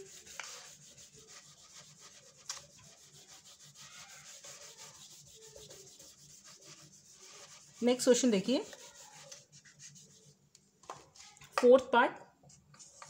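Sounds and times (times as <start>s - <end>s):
eraser rubbing on whiteboard: 0.0s - 10.4s.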